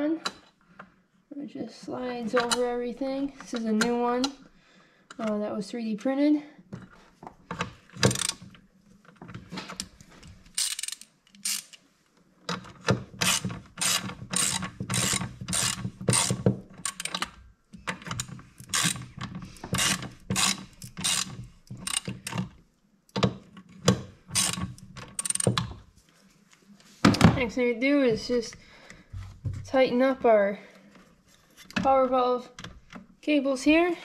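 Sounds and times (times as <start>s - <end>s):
ratchet wrench clicking: 8.1s - 8.4s, 10.5s - 11.8s, 13.2s - 17.3s, 18.2s - 19.1s, 19.8s - 22.4s, 24.3s - 25.6s.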